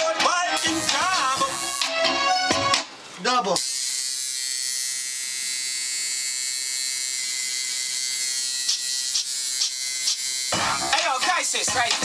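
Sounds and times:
loud music with a beat: 0.0s - 2.9s, 10.5s - 12.0s
turntable scratching: 0.6s - 1.9s, 10.1s - 12.0s
tattoo machine buzzing: 0.6s - 2.0s, 3.6s - 11.5s.

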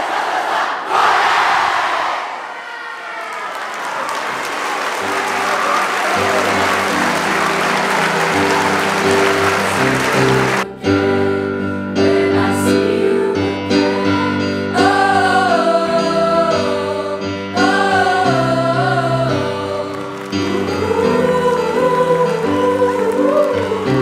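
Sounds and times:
applause: 3.2s - 10.7s, 19.9s - 20.6s
held chords: 5.2s - 24.0s
person singing: 6.1s - 24.0s.

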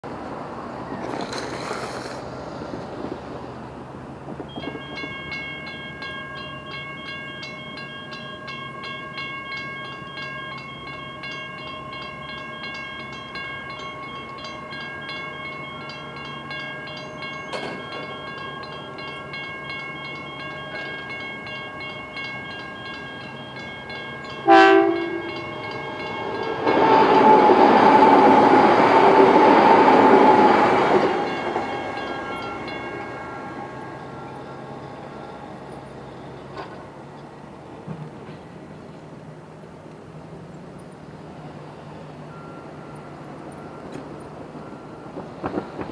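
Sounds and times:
train passing: 0.0s - 45.9s
level crossing warning bells: 4.4s - 37.8s, 40.7s - 45.9s
train horn blast: 24.4s - 25.5s, 26.6s - 30.5s.

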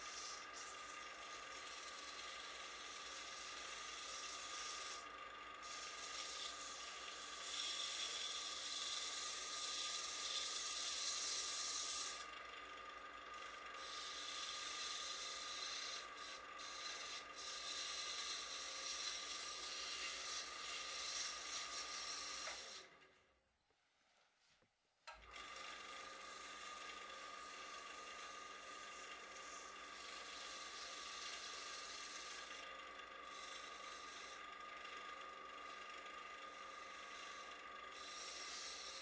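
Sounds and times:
sandpaper sanding wood: 0.0s - 5.0s, 5.6s - 12.2s, 13.8s - 22.8s, 27.4s - 32.6s, 33.3s - 34.4s, 36.5s - 39.0s
wood lathe running: 0.0s - 23.2s, 25.1s - 39.0s.

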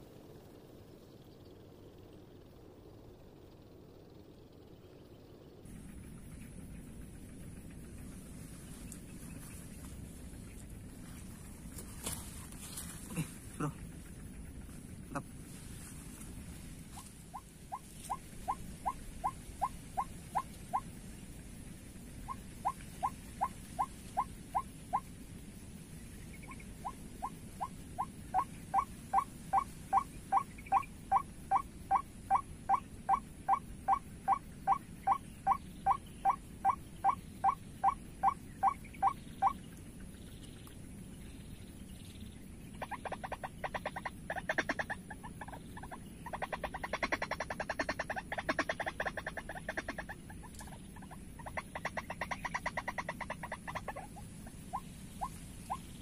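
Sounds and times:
waterhen calls: 16.9s - 20.8s, 22.2s - 25.1s, 26.3s - 39.6s, 42.8s - 56.0s
harsh bird chatter: 26.0s - 56.0s.

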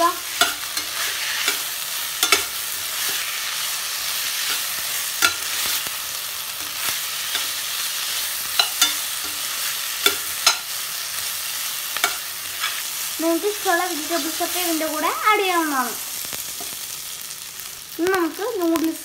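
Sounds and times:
metal spatula scraping a pan: 0.0s - 13.0s
food sizzling in a pan: 0.0s - 19.0s.

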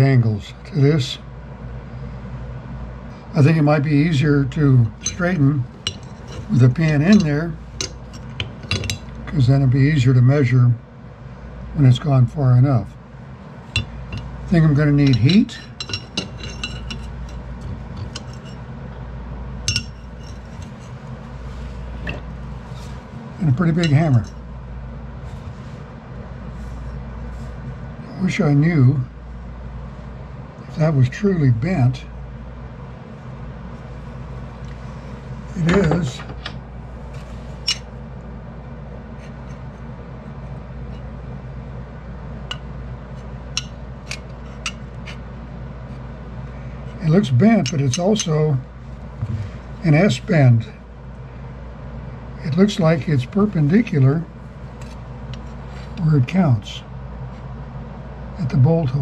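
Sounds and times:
steady low hum: 0.0s - 59.0s
metal bracket clinking on anvil: 4.9s - 9.1s, 15.0s - 17.4s, 19.7s - 20.4s.

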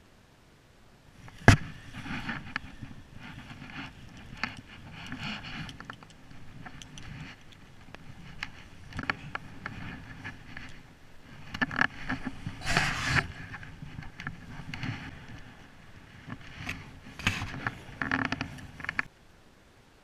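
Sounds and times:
jacket sleeve rustling: 12.0s - 13.5s.

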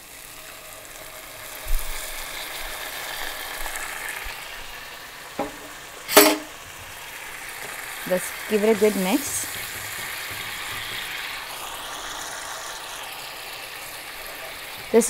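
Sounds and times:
gravy sizzling in a pan: 0.0s - 15.0s
sharp knock: 5.4s - 6.5s.

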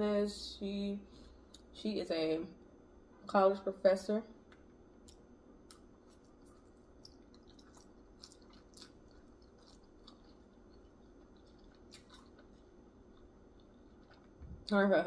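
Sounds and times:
person chewing food: 4.5s - 14.7s
small crunches: 5.0s - 14.4s.

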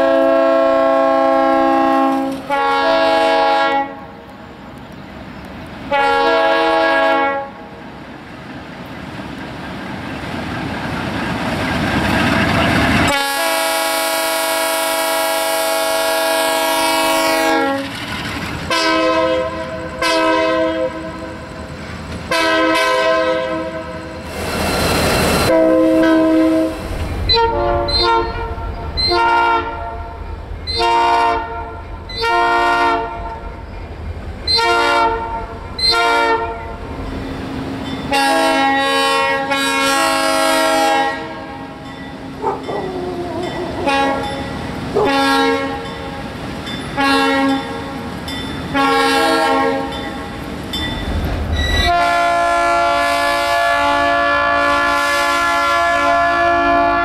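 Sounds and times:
locomotive air horn blasts: 0.0s - 4.2s, 5.9s - 7.7s, 13.1s - 17.9s, 18.7s - 21.3s, 22.3s - 24.1s, 25.5s - 33.5s, 34.5s - 36.8s, 38.1s - 41.8s, 43.4s - 44.4s, 45.0s - 45.8s, 46.9s - 48.0s, 48.7s - 50.0s, 51.8s - 57.0s
second locomotive horn: 0.0s - 4.2s, 5.9s - 7.7s, 13.1s - 18.0s, 18.7s - 21.3s, 22.3s - 24.1s, 25.4s - 33.6s, 34.5s - 36.8s, 38.1s - 41.8s, 42.4s - 45.9s, 46.9s - 48.0s, 48.7s - 50.0s, 51.7s - 57.0s
low rumble of train: 0.0s - 57.0s.

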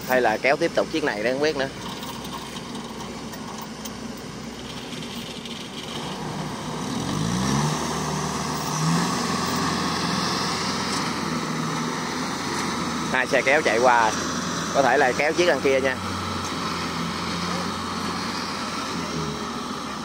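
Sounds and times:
farm machinery engines running: 0.0s - 20.0s
engine revving up: 5.8s - 20.0s.

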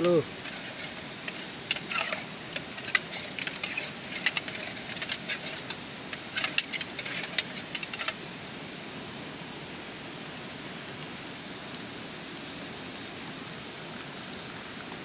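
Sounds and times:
steady background hiss: 0.0s - 15.0s
metal spoon clinking in pot: 0.4s - 8.2s.

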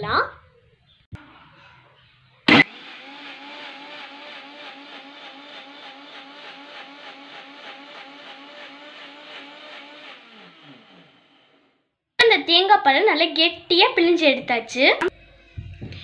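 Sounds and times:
mixer grinder motor running: 2.5s - 11.9s.

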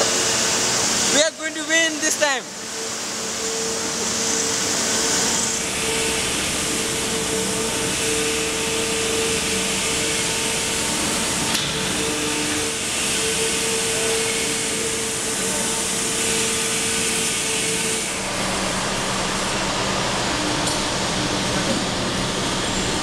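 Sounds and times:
machinery humming tones: 0.0s - 23.0s.

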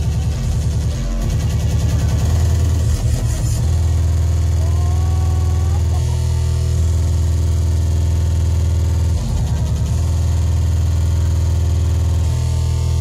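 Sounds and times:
pounding kick drum: 0.0s - 4.6s
distorted bass note: 0.0s - 13.0s
hardcore techno over sound system: 0.0s - 13.0s.

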